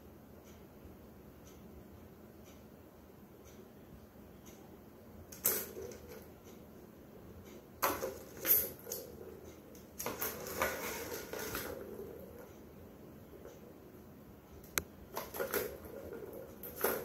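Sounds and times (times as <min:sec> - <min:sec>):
plastic balls rattling in toy tracks: 0:10.0 - 0:11.8.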